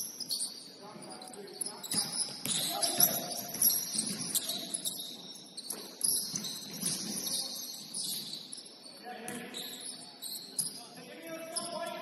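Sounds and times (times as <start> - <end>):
shoes squeaking on gym floor: 0.0 - 12.0
ball bouncing: 1.8 - 4.6, 5.6 - 7.3.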